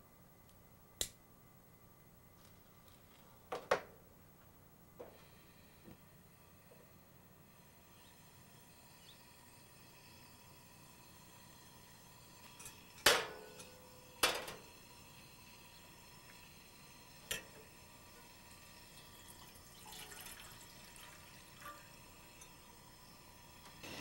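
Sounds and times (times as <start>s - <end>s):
water pouring into saucepan: 14.7s - 23.6s.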